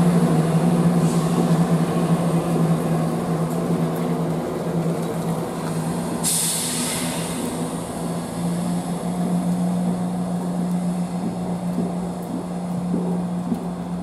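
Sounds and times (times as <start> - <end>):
diesel train engine humming: 0.0 - 14.0
sharp hiss: 6.2 - 8.5.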